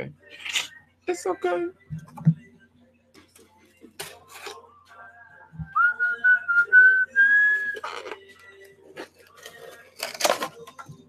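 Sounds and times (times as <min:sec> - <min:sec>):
person whistling: 0:05.6 - 0:08.0.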